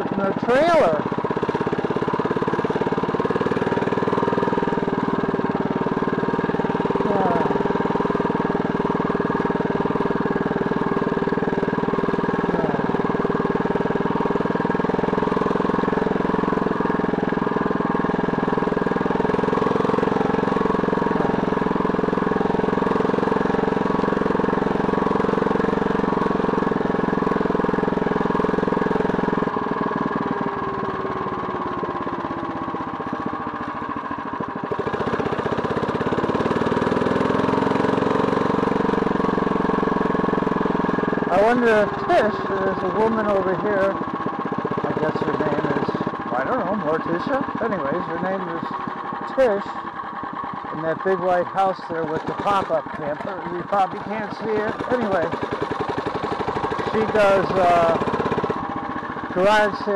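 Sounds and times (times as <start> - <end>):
motorized bike engine running: 0.0 - 59.9.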